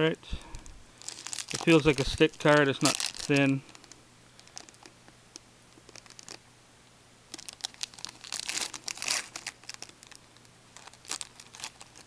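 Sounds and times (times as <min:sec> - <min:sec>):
foil wrapper crinkling: 0:01.0 - 0:05.0, 0:05.8 - 0:06.4, 0:07.3 - 0:12.0.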